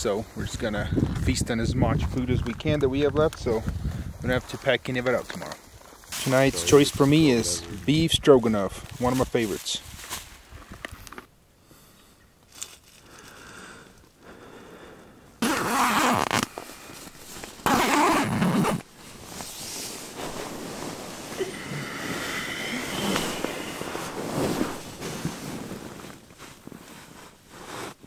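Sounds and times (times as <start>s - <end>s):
sleeping bag zipper: 15.4s - 16.6s, 17.2s - 28.0s
nylon sleeping bag rustling: 15.4s - 28.0s.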